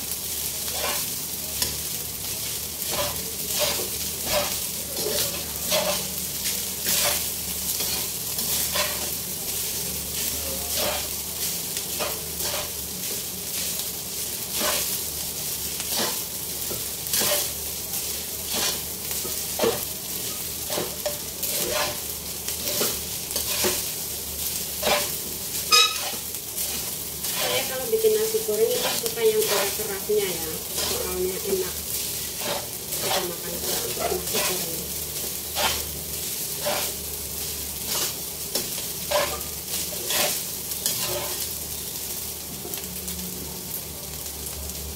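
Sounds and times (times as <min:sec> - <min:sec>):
rice sizzling in a wok: 0:00.0 - 0:44.9
metal spatula scraping wok: 0:00.7 - 0:01.2, 0:02.8 - 0:06.2, 0:06.8 - 0:09.2, 0:10.3 - 0:11.2, 0:11.9 - 0:12.8, 0:14.4 - 0:15.0, 0:15.8 - 0:17.6, 0:18.4 - 0:24.0, 0:24.6 - 0:37.1, 0:37.8 - 0:41.5.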